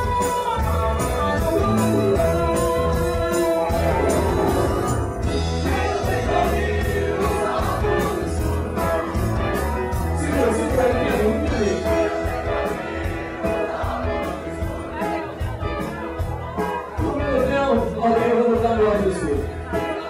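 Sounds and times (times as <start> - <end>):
drum kit cymbal beat: 0.0 - 17.1
electric guitar: 0.0 - 18.0
man singing lead vocal: 1.4 - 9.3, 10.0 - 14.4.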